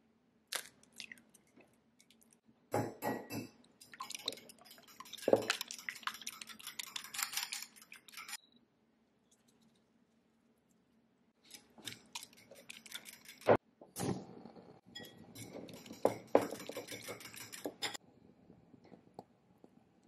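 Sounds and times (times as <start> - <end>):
fork whisking eggs in bowl: 3.7 - 8.4, 11.4 - 13.6, 15.0 - 18.0.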